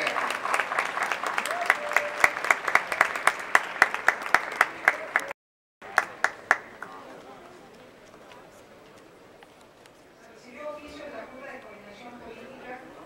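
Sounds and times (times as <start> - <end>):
applause: 0.0 - 7.0.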